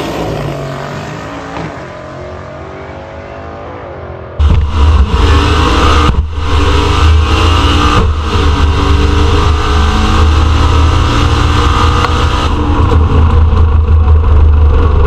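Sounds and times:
car engine at full throttle: 0:00.0 - 0:15.0.

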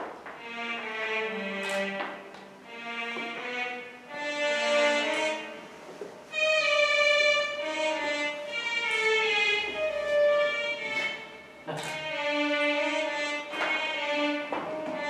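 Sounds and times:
violin long-held notes: 0:00.4 - 0:15.0.

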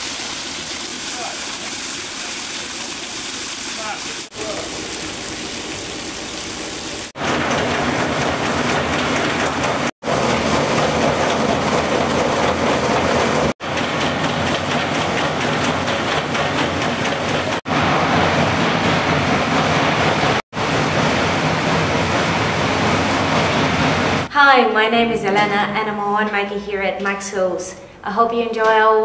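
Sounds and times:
grape crusher machine rattling: 0:07.2 - 0:24.3.

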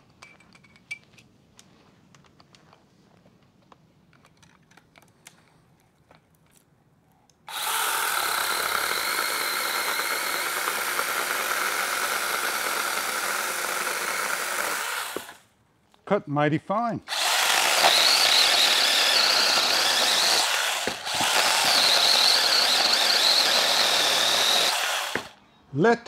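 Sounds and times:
chainsaw cutting branch: 0:07.5 - 0:15.4, 0:17.1 - 0:25.4.

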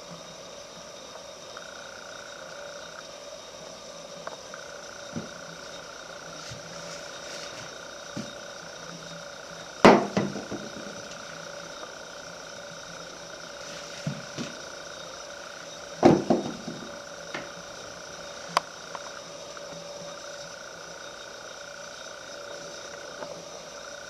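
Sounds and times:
steady hum: 0:00.0 - 0:24.0
loud sharp knocks: 0:09.8 - 0:11.0, 0:16.0 - 0:17.5.

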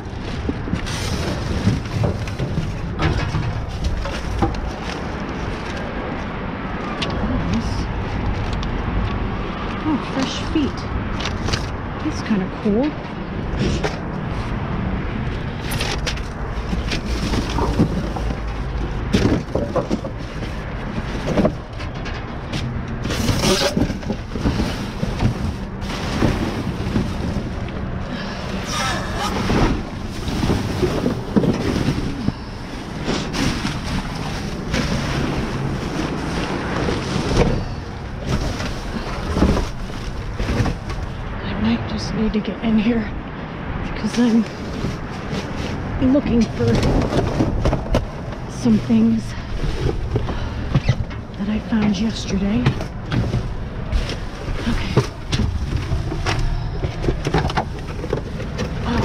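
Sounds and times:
bags and boxes rustling: 0:00.0 - 0:08.8, 0:15.5 - 0:41.4.

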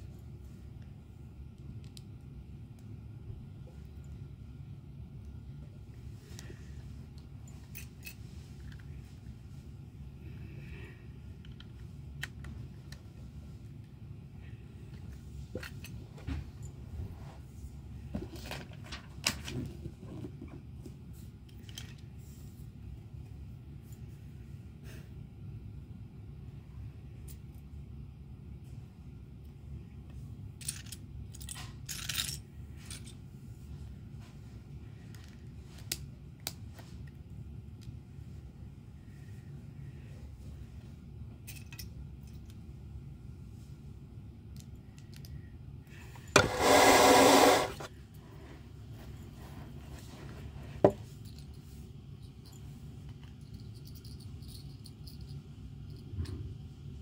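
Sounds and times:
loud rubbing rustle: 0:46.4 - 0:48.5.

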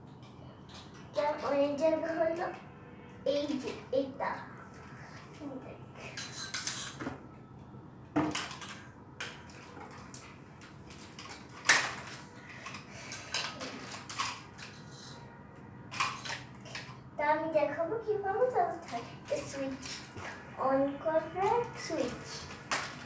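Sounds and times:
plastic toy clicks and knocks: 0:08.2 - 0:10.3, 0:10.9 - 0:15.2, 0:15.9 - 0:17.0.

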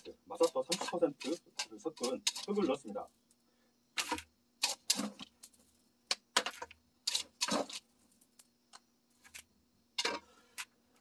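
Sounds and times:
scoop scraping and pouring soil: 0:00.0 - 0:03.1, 0:04.0 - 0:05.8, 0:06.4 - 0:08.3.

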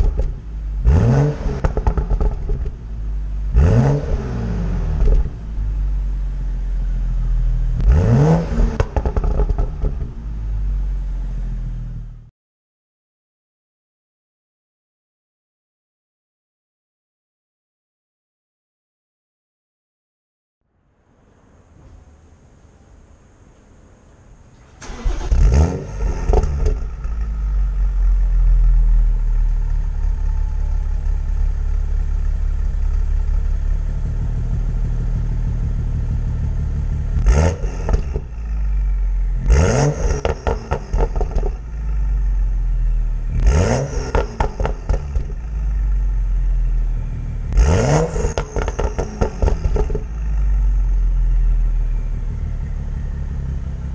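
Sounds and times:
engine revving: 0:00.0 - 0:02.8, 0:03.4 - 0:12.3, 0:24.8 - 0:53.9
car engine idling high: 0:00.0 - 0:12.3, 0:24.1 - 0:53.9
exhaust crackles: 0:00.0 - 0:12.3, 0:24.4 - 0:53.9.

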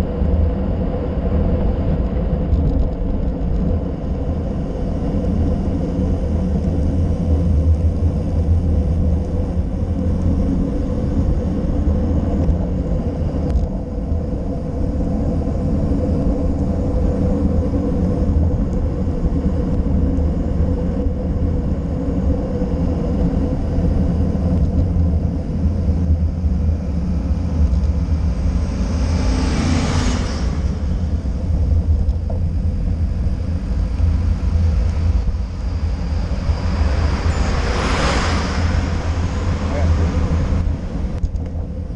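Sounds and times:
bike tyres on asphalt: 0:00.0 - 0:41.9
wind buffeting: 0:00.0 - 0:41.9.

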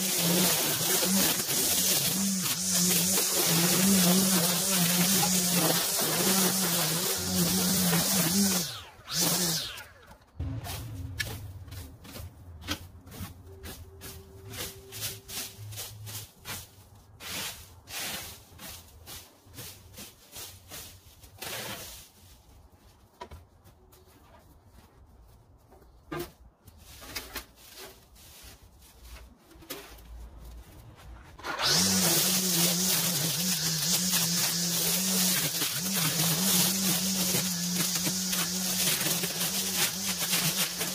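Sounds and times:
string trimmer humming: 0:00.0 - 0:11.4, 0:31.4 - 0:40.9
rake scratching through dry grass: 0:00.0 - 0:23.1, 0:26.2 - 0:40.9.

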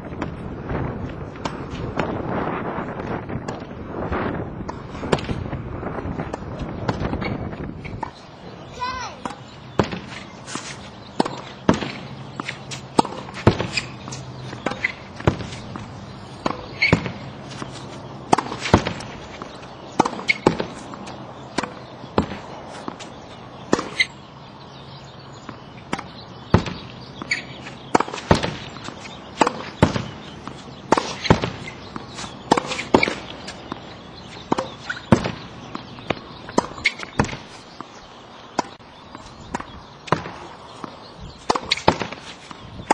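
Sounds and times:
racket striking tennis ball: 0:01.0 - 0:02.2, 0:04.6 - 0:05.4, 0:06.2 - 0:24.2, 0:25.4 - 0:42.9
ball bouncing on hard court: 0:09.0 - 0:10.3, 0:11.1 - 0:23.0, 0:25.4 - 0:37.9, 0:39.5 - 0:42.9.

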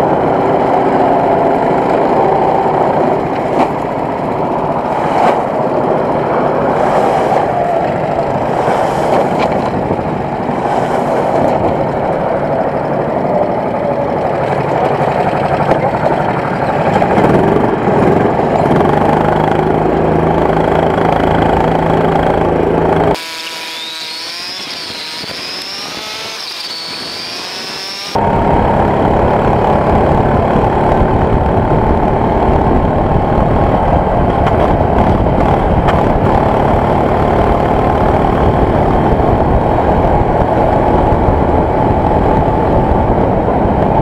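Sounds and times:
go-kart engines rattling: 0:00.0 - 0:44.0
kart engine revving: 0:00.0 - 0:44.0.

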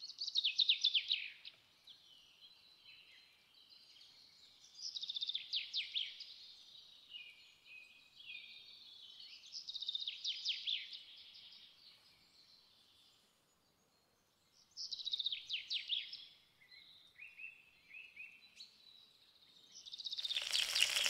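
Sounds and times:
faint bird chirps: 0:00.2 - 0:21.0
songbird trilling: 0:20.1 - 0:21.0.

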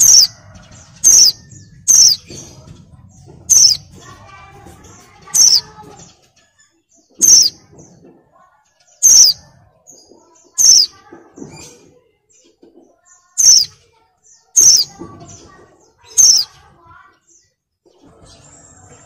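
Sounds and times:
bird calling high-pitched: 0:00.0 - 0:00.4, 0:01.0 - 0:02.3, 0:03.5 - 0:03.9, 0:05.3 - 0:05.8, 0:07.1 - 0:07.6, 0:09.0 - 0:09.6, 0:10.5 - 0:11.0, 0:13.4 - 0:13.8, 0:14.5 - 0:15.0, 0:16.0 - 0:16.6.

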